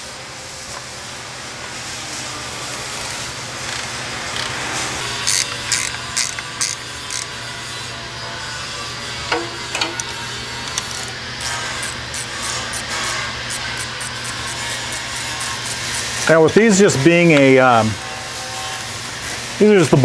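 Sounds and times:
torque wrench ratchet clicking: 0:05.2 - 0:07.3, 0:10.7 - 0:16.4, 0:18.0 - 0:19.5.

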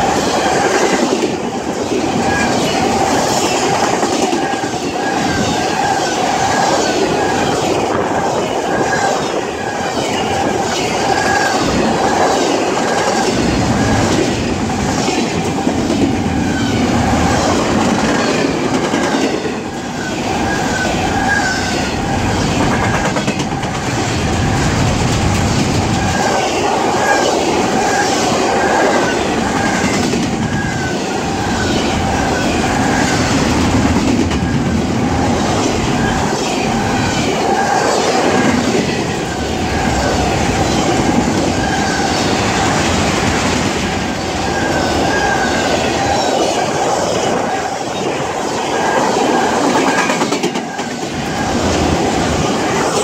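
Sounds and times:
train wheels clacking over rail joints: 0:22.4 - 0:31.0, 0:49.2 - 0:53.0.

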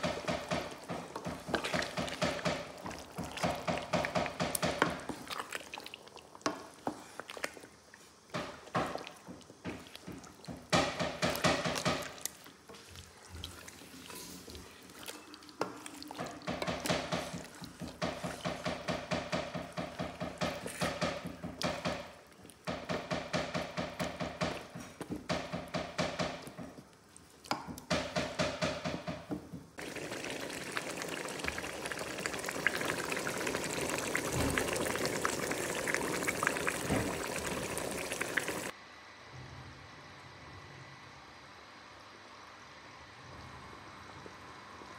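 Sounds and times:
wooden spoon stirring stew: 0:00.0 - 0:38.7
stew bubbling and sizzling: 0:00.0 - 0:38.8.

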